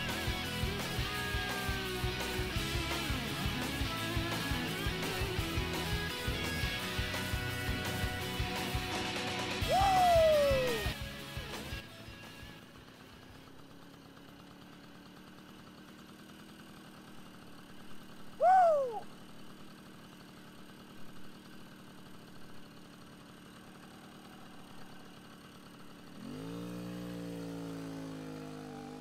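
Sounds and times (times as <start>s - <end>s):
moped engine idling and revving: 0.0s - 29.0s
high falling whoop: 9.6s - 11.0s, 18.4s - 19.1s.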